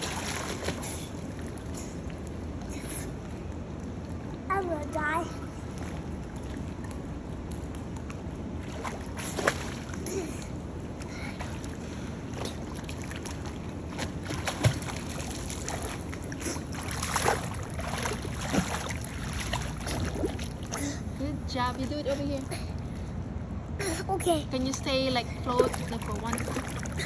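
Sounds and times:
pool water splashing: 0:00.0 - 0:27.0.

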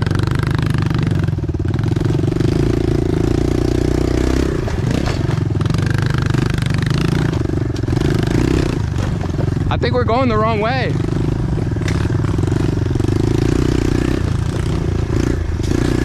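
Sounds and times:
bike knocking and rattling: 0:00.0 - 0:16.0
pit bike engine revving: 0:00.0 - 0:16.0.

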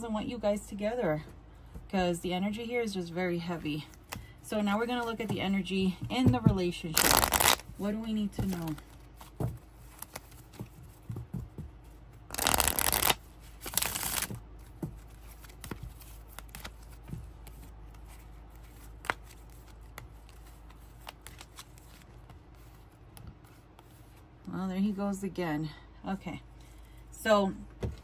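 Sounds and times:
cards being shuffled: 0:06.9 - 0:07.7, 0:08.4 - 0:11.1, 0:11.8 - 0:24.2
cards clicking and tapping: 0:12.3 - 0:17.6.

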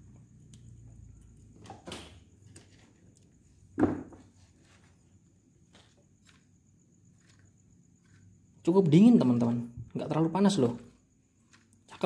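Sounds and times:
dull knock: 0:03.8 - 0:04.2.

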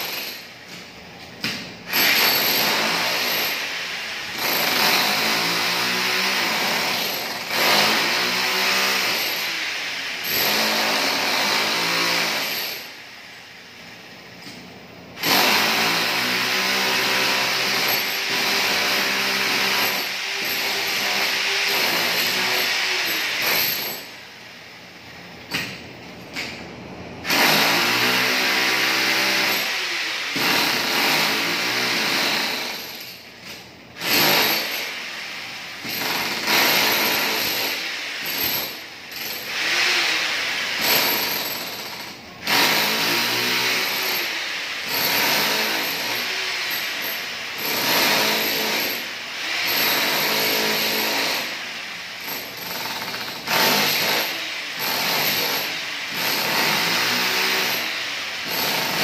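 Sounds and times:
demolition hammer chiseling tiles: 0:00.0 - 0:13.0, 0:15.2 - 0:24.2, 0:27.2 - 0:35.1, 0:35.8 - 0:59.0.

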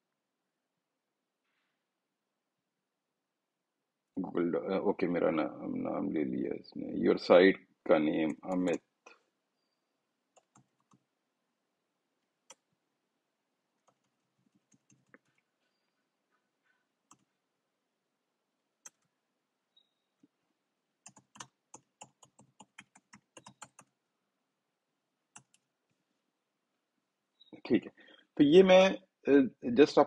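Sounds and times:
typing on a computer keyboard: 0:10.4 - 0:11.0, 0:13.8 - 0:15.4, 0:21.0 - 0:23.9, 0:25.4 - 0:25.6.

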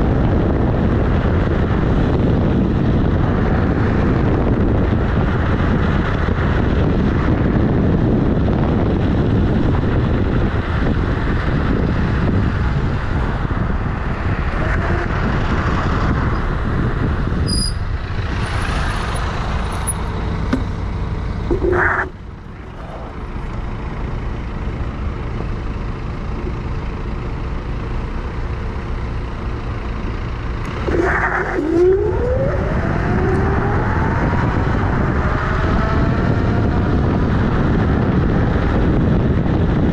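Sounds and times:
traffic: 0:00.0 - 0:39.9
wind and road noise: 0:00.0 - 0:39.9
rising whine: 0:21.4 - 0:23.5, 0:30.6 - 0:37.4.

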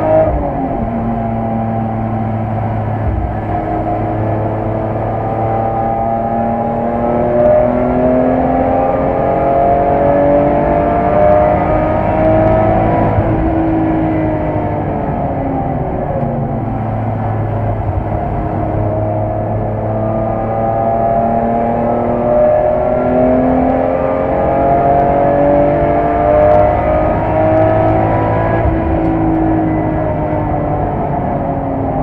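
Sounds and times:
car engine accelerating: 0:00.0 - 0:32.0.

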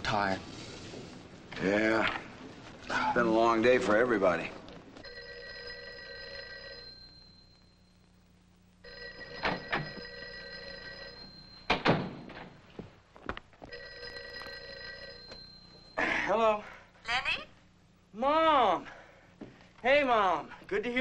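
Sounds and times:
telephone bell ringing: 0:05.0 - 0:07.9, 0:08.8 - 0:12.3, 0:13.7 - 0:16.0.

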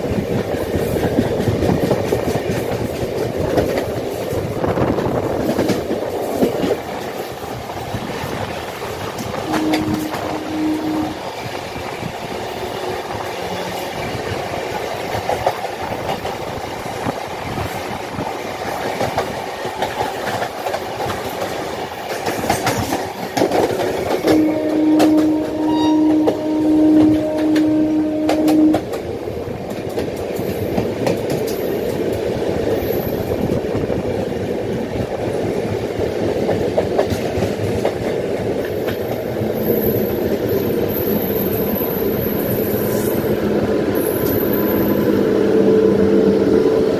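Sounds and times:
train wheels clacking on rails: 0:00.0 - 0:46.9
train horn: 0:09.3 - 0:11.4, 0:24.2 - 0:28.9, 0:45.3 - 0:46.9.

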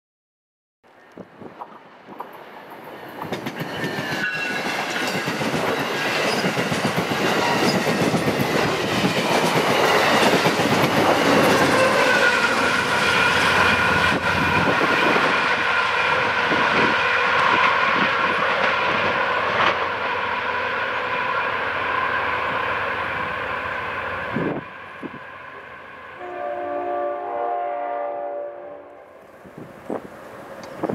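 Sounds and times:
passenger train passing at speed: 0:01.4 - 0:30.9
train wheels clattering over rail: 0:02.1 - 0:15.4
train horn chord: 0:11.6 - 0:14.7, 0:26.2 - 0:29.3.

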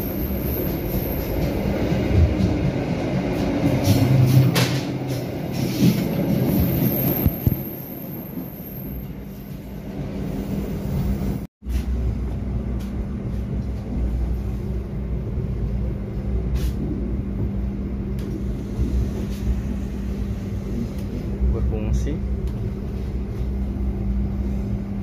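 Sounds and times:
train carriage rumble and hum: 0:00.0 - 0:25.0.

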